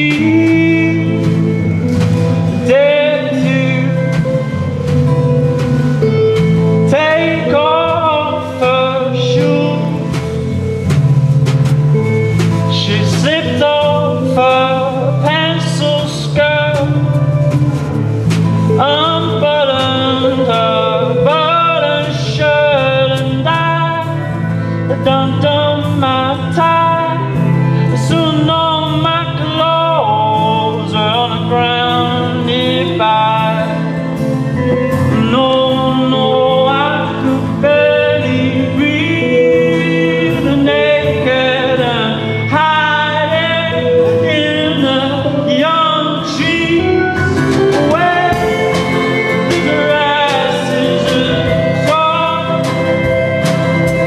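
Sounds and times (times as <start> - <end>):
man singing: 0.0 - 54.0
strummed acoustic guitar: 0.0 - 54.0.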